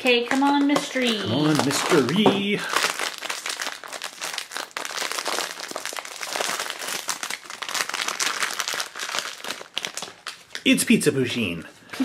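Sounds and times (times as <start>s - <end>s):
foil pouch crinkling and tearing: 0.9s - 10.8s.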